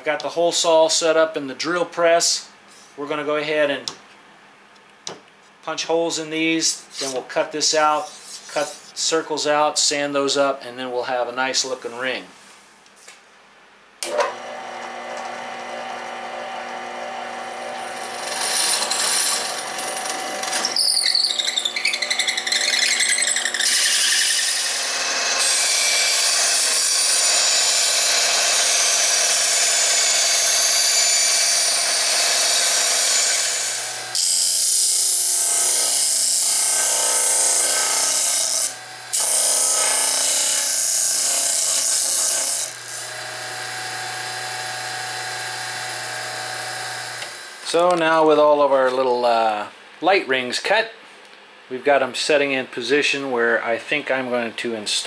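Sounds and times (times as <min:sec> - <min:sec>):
drill press cutting wood: 0:14.0 - 0:47.8
band saw cutting wood: 0:14.0 - 0:48.0
disc sander sanding wood: 0:14.6 - 0:34.5.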